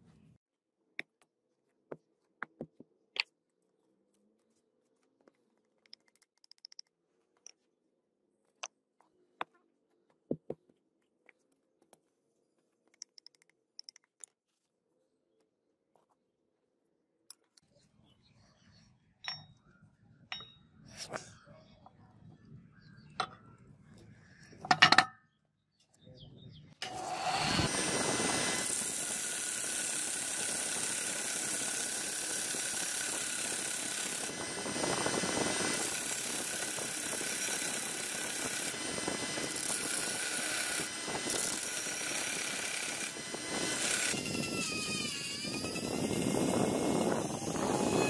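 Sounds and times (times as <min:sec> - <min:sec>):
belt sander grinding metal: 0:26.8 - 0:48.0
rotary tool sanding metal: 0:26.8 - 0:48.0.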